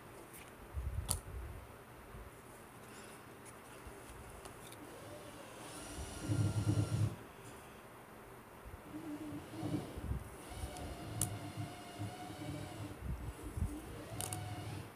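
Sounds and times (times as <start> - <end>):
cards sliding: 13.7 - 14.5.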